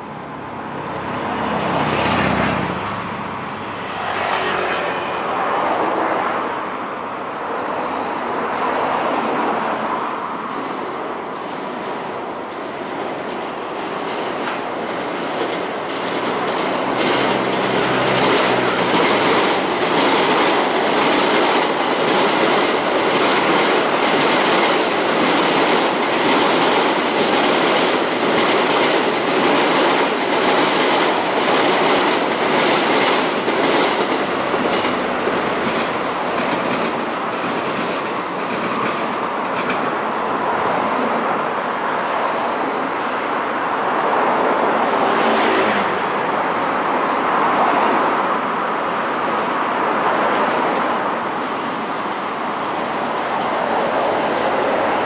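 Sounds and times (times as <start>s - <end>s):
train wheels clickety-clack: 11.3s - 41.2s.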